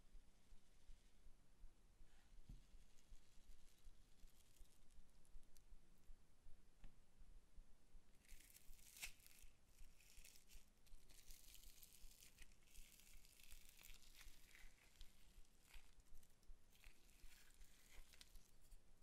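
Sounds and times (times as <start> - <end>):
plastic cup and foam beads crinkling: 8.2 - 18.8.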